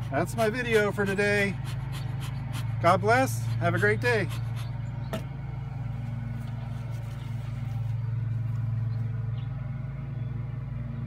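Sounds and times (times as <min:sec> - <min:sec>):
motor humming: 0:00.0 - 0:11.0.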